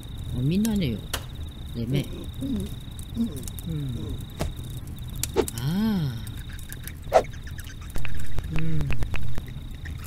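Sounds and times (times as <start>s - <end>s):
crickets chirping: 0.0s - 10.0s
wordless hum: 2.5s - 8.5s.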